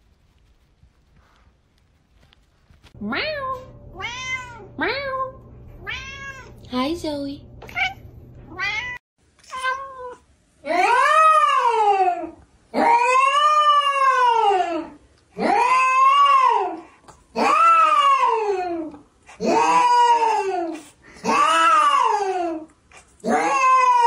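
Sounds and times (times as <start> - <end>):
cat meowing: 3.1 - 6.6, 7.7 - 11.8.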